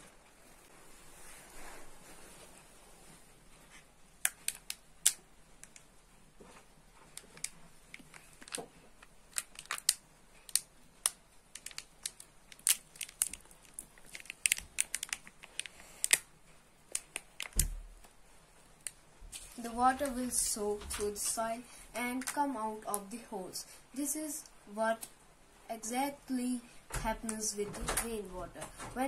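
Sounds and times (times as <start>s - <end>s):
disposable cup crackling: 4.2s - 5.9s, 7.0s - 16.3s, 16.9s - 17.7s.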